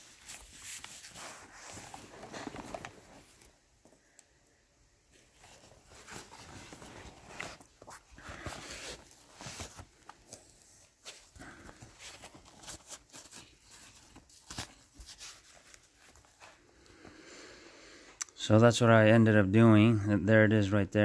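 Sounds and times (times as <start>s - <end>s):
fabric and foam rustling: 0.0s - 4.1s, 5.0s - 16.8s.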